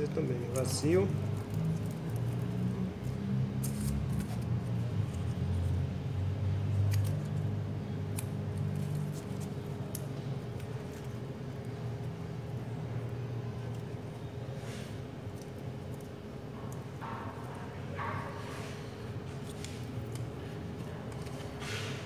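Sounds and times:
hands handling wire and paper: 3.6s - 5.8s, 8.1s - 17.5s, 18.3s - 22.0s.

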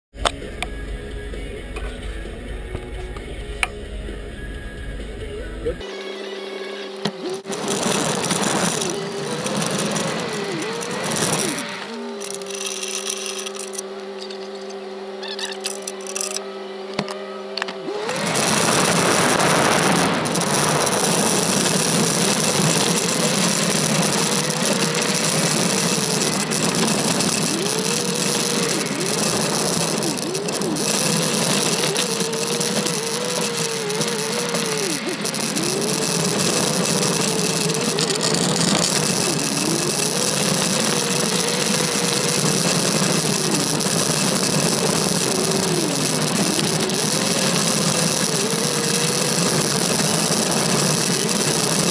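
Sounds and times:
car engine revving: 0.1s - 5.9s, 7.2s - 51.9s
road and wind noise: 17.7s - 51.8s.

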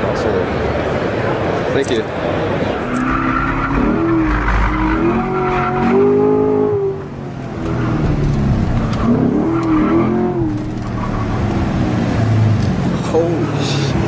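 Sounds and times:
car engine revving: 2.5s - 14.0s.

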